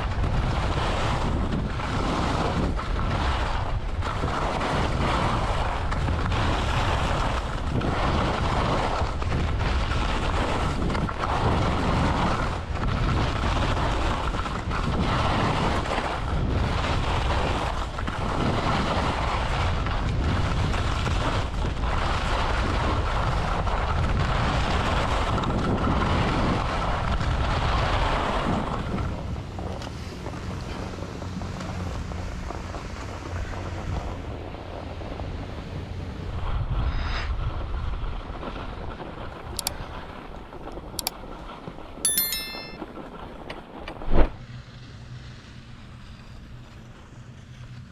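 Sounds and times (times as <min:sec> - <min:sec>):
wind buffeting microphone: 0:00.0 - 0:30.5.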